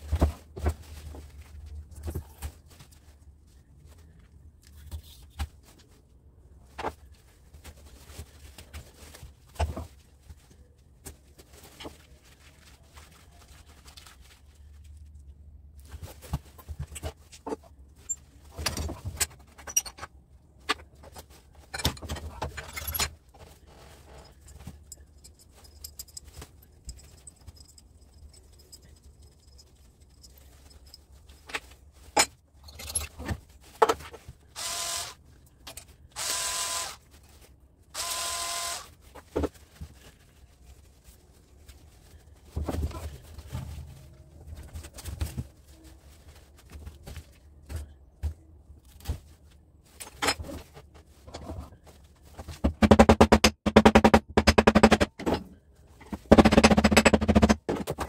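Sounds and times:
hand tools clicking and clinking: 24.2 - 31.6.

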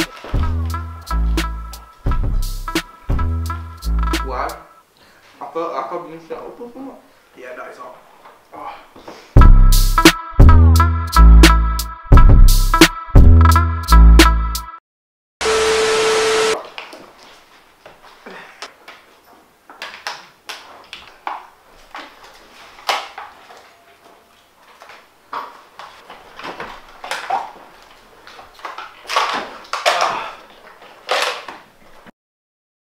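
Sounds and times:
plastic water bottle crinkling: 18.8 - 32.1.

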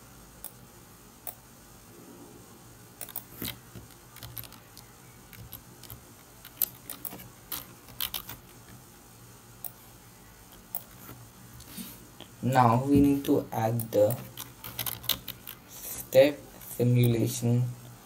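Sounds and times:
computer mouse clicks: 3.0 - 8.5
keyboard typing: 3.0 - 8.6, 13.8 - 15.6.

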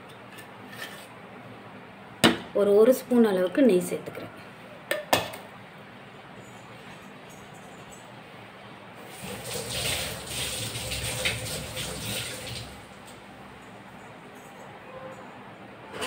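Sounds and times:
water running: 9.0 - 13.2.

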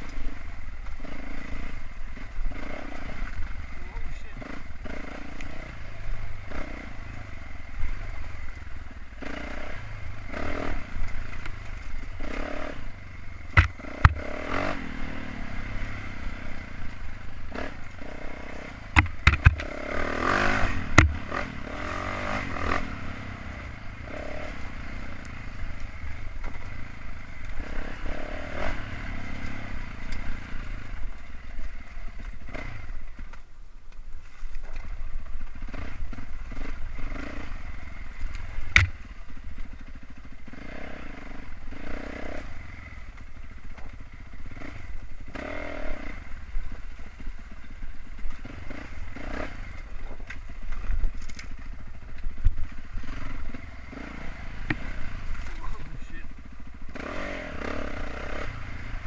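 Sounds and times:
dirt bike engine revving: 0.0 - 33.2, 34.8 - 59.0
rocks knocking against bike: 13.4 - 14.3, 18.9 - 19.8, 20.8 - 21.3, 38.3 - 39.9.

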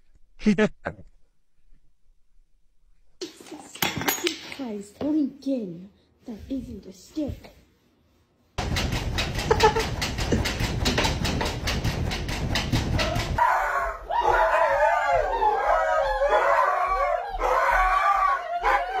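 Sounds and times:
dog pawing at glass door: 8.6 - 13.4
dogs howling: 13.4 - 19.0.

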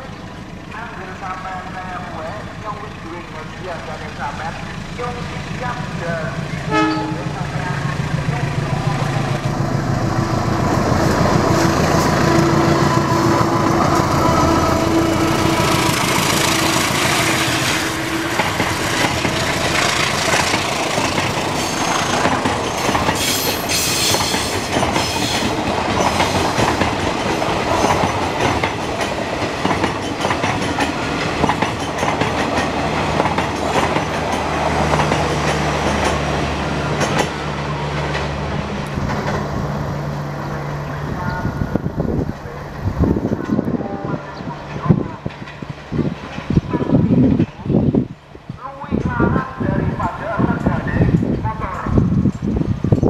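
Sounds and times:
diesel locomotive engine: 0.0 - 53.0
train carriages clickety-clack: 0.0 - 53.0
wheel screech: 21.5 - 25.5.

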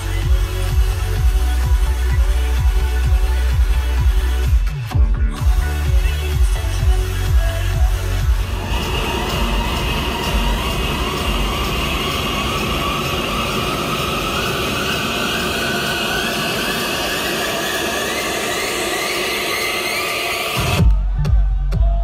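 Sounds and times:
electronic dance music build-up: 0.0 - 22.0
noisy riser sweeping upward: 8.4 - 20.8.

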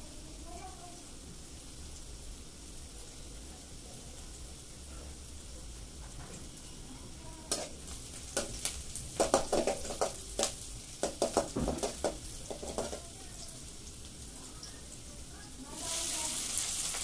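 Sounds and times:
onions frying sizzle: 0.0 - 17.0.

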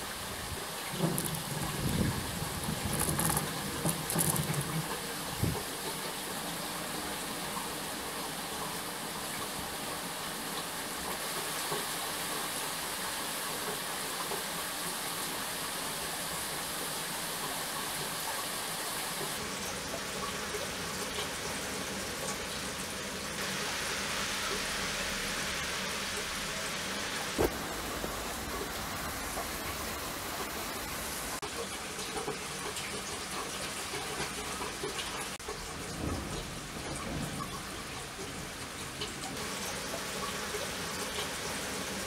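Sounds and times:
rain hiss: 0.0 - 42.0.

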